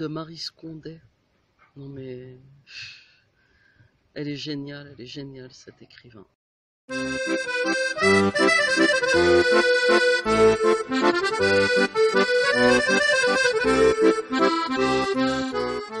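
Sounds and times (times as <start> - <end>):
accordion melody: 6.9 - 16.0
pulsing bass accompaniment: 6.9 - 16.0.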